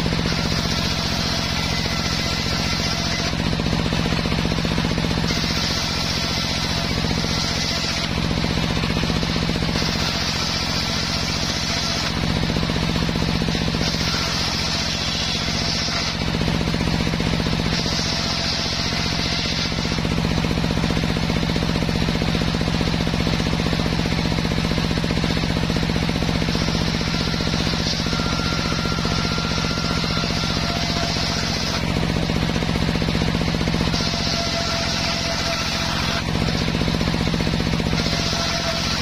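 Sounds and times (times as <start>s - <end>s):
table saw humming: 0.0s - 39.0s
saw blade hissing through wood: 5.0s - 21.4s.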